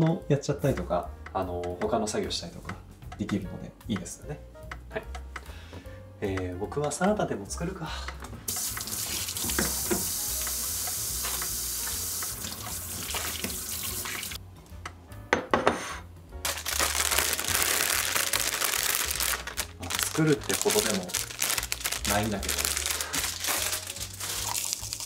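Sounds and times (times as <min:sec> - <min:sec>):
tap running into steel sink: 0:08.5 - 0:14.1.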